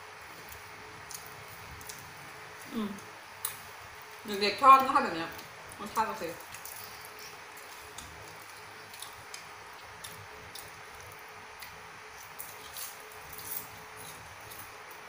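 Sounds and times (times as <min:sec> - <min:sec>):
faint steady hum: 0:00.0 - 0:15.0
crunching of crispy food: 0:04.8 - 0:15.0.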